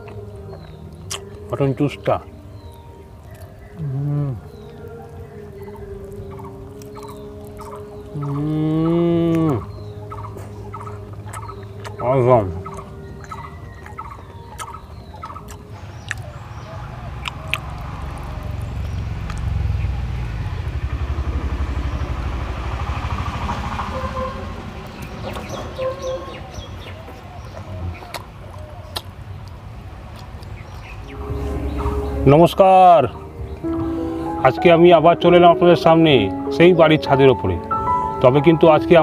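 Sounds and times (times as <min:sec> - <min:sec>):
man eating with wet smacks: 0:00.0 - 0:01.5, 0:11.0 - 0:12.0, 0:12.6 - 0:16.3, 0:27.1 - 0:30.7
bird warbling call: 0:02.6 - 0:19.1, 0:23.8 - 0:29.2, 0:30.5 - 0:34.7
low rumble: 0:15.2 - 0:28.2, 0:29.4 - 0:35.1.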